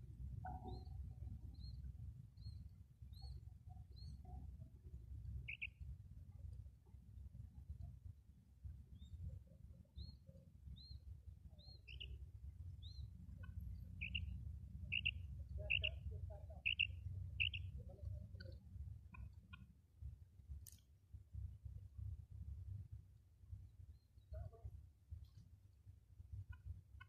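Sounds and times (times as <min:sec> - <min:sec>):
quail calling: 0:14.0 - 0:14.2, 0:14.9 - 0:16.0, 0:16.6 - 0:17.7.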